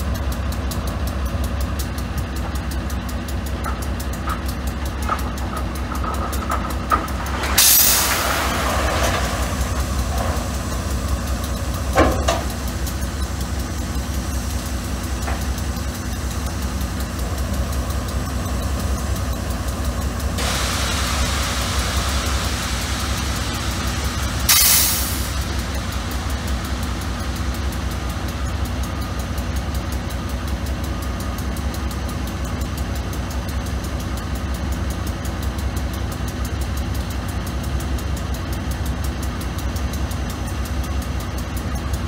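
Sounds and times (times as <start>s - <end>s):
diesel locomotive idling: 0.0s - 42.0s
rubble sliding off dump car: 5.0s - 11.2s
steady hiss: 7.1s - 29.9s.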